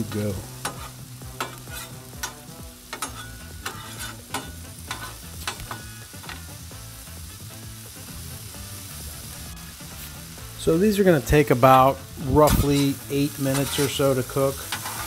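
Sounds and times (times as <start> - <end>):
potatoes sizzling in oil: 0.0 - 15.0
metal spatula scraping and tapping: 0.6 - 6.4, 12.4 - 14.1, 14.7 - 15.0.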